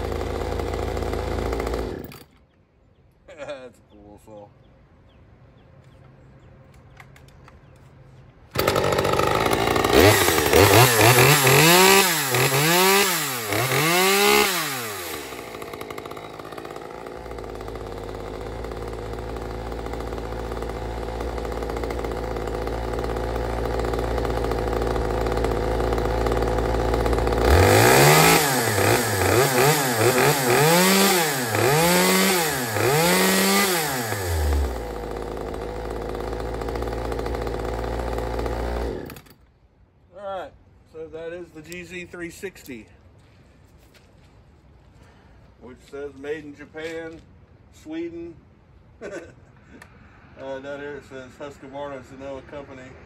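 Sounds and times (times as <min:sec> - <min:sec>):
chainsaw revving and idling: 0:00.0 - 0:02.3, 0:08.5 - 0:39.4.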